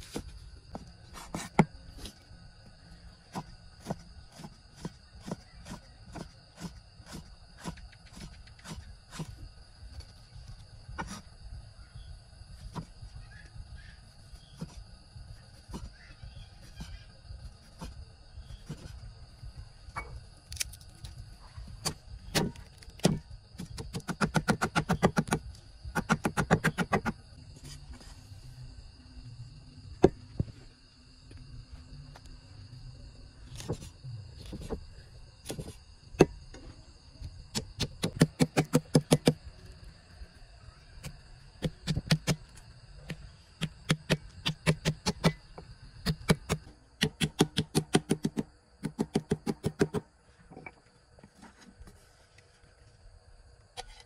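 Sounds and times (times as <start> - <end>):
cleaver chopping on wooden block: 37.6 - 39.4, 46.0 - 50.0.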